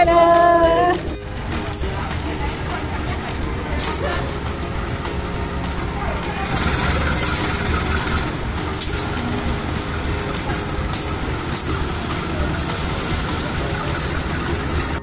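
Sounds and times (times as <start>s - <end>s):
diesel locomotive rumble: 0.0s - 15.0s.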